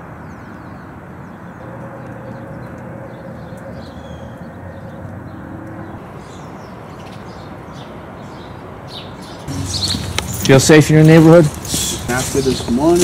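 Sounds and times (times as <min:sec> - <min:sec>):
traffic rumble: 0:00.0 - 0:13.0
faint engine hum: 0:01.4 - 0:07.7.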